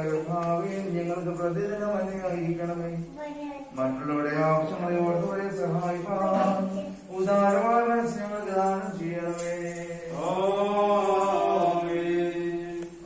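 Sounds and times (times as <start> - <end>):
person chanting a hymn: 3.8 - 13.0.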